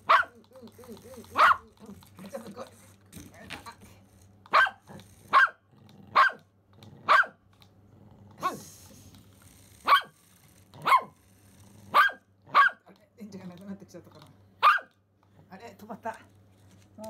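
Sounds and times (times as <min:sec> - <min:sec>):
small dog barking: 0:00.0 - 0:00.4, 0:01.3 - 0:01.7, 0:04.5 - 0:07.4, 0:09.8 - 0:10.2, 0:10.8 - 0:11.2, 0:11.9 - 0:12.9, 0:14.6 - 0:15.0.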